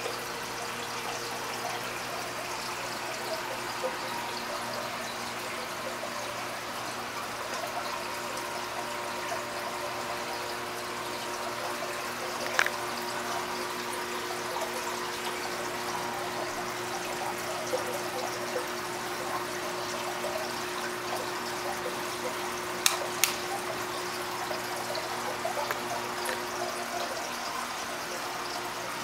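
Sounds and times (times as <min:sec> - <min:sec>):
aquarium water trickling: 0:00.0 - 0:29.0
sharp clicks: 0:22.8 - 0:23.4.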